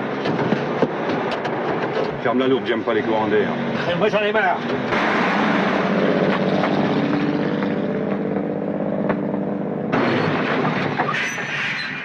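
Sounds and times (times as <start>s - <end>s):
heavy truck engine running: 3.4s - 11.1s
rough rushing noise: 4.7s - 12.0s
high squeals: 11.0s - 12.0s.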